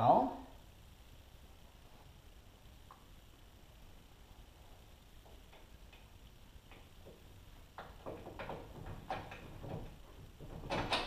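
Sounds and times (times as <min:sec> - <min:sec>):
metal knocks and clicks: 0:07.8 - 0:11.0.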